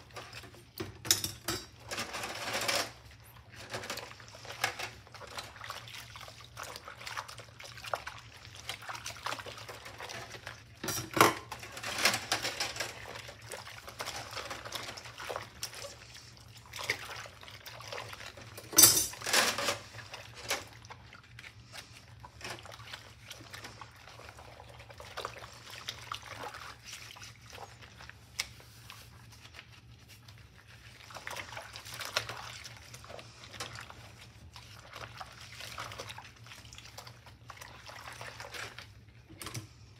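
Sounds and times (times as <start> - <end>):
water sloshing and dripping: 0.0 - 39.9
cloth scrubbing: 19.8 - 39.2.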